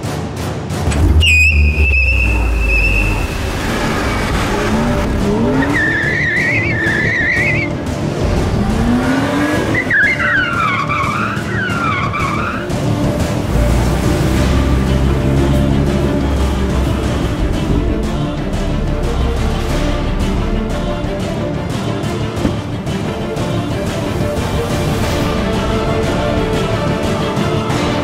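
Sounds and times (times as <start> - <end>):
car engine revving: 0.8 - 28.0
tyres squealing: 0.9 - 7.8, 9.6 - 12.8.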